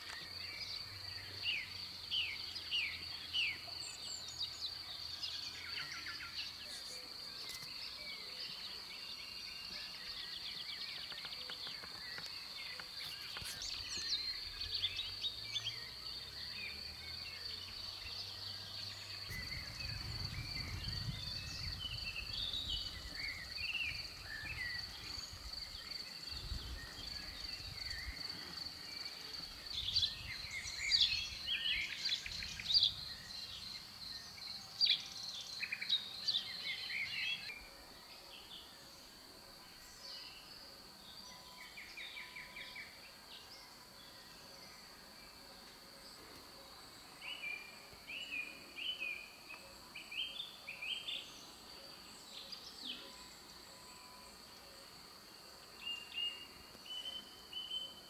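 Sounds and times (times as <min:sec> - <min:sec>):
birds chirping and singing: 0:00.0 - 0:45.4.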